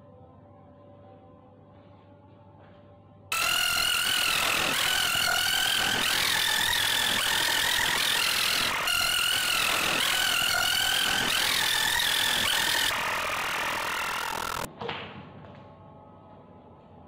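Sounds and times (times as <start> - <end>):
crackling whir with wavering tones: 3.3 - 14.7.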